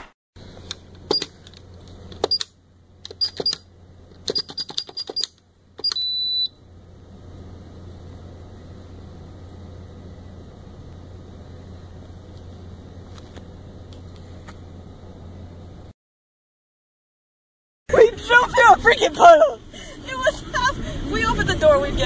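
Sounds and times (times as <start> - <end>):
steady low hum: 0.4 - 4.4, 5.3 - 15.9, 17.9 - 22.0
keypad button clicks and beeps: 2.2 - 2.5, 3.1 - 3.6, 4.3 - 6.5
longer lower beep: 5.8 - 6.6.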